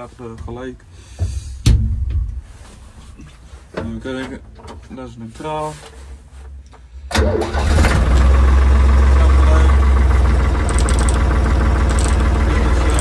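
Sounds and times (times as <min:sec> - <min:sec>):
diesel tractor engine starting: 0:07.1 - 0:13.0
tractor engine idling: 0:07.2 - 0:13.0.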